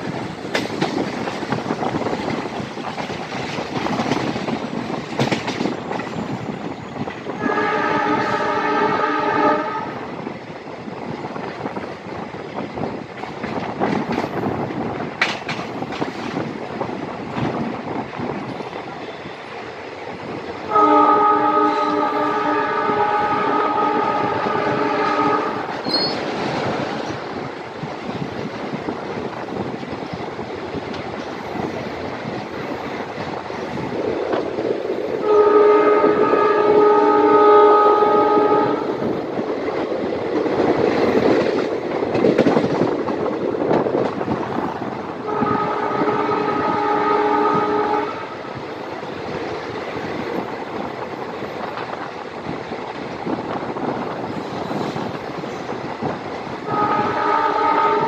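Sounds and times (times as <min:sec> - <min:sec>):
train wheels rumbling on rails: 0:00.0 - 0:58.0
wind: 0:00.0 - 0:58.0
locomotive horn blasts: 0:07.4 - 0:10.0, 0:20.7 - 0:25.7, 0:35.2 - 0:39.0, 0:45.2 - 0:48.4, 0:56.7 - 0:58.0.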